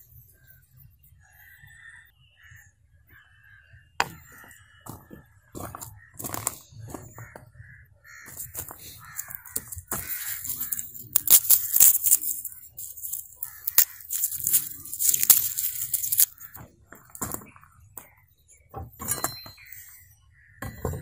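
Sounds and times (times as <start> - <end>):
garlic skin crackling: 8.4 - 16.6.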